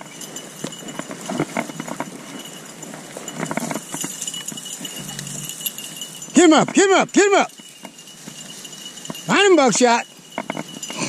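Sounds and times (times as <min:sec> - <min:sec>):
footsteps crunching through dry brush: 0:04.0 - 0:06.3.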